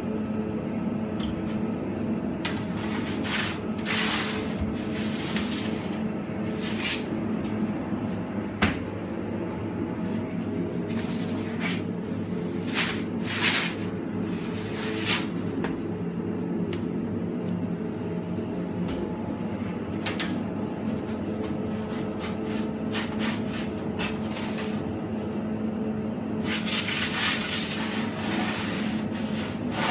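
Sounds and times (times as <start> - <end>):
steady machine hum: 0.0 - 29.9
metal baking trays scraping: 2.5 - 7.1, 10.9 - 15.5, 21.0 - 24.9, 26.4 - 29.9.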